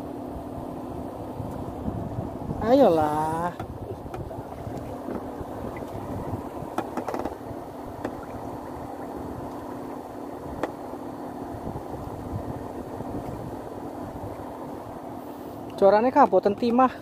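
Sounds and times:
water noise: 0.0 - 16.8
boat engine humming: 0.0 - 17.0
wind: 0.0 - 17.0.

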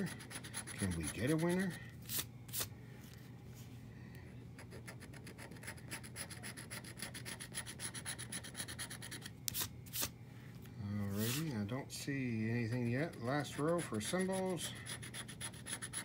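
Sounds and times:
scratch-off ticket being scraped: 0.0 - 2.7, 4.6 - 10.1, 11.2 - 11.5, 12.6 - 16.0.

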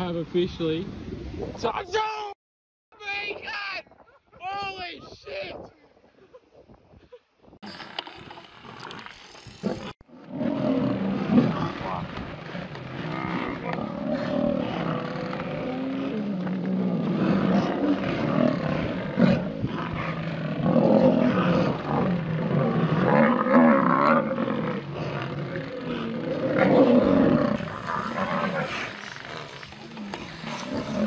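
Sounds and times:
lions growling and snarling: 8.6 - 31.0.

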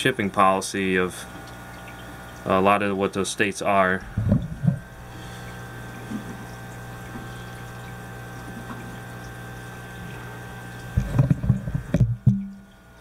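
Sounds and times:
aquarium pumps humming: 0.0 - 13.0
running water: 0.0 - 13.0.

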